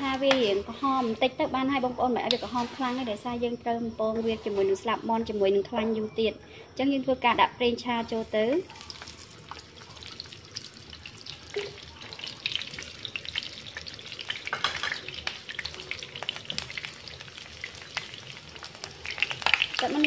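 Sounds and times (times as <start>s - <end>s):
food sizzling in oil: 0.0s - 5.7s, 7.3s - 20.0s.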